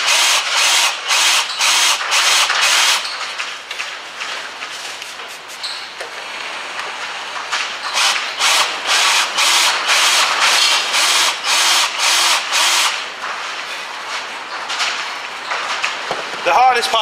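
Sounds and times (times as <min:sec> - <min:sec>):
electric drill grinding into steel: 0:00.0 - 0:03.1, 0:07.9 - 0:13.0.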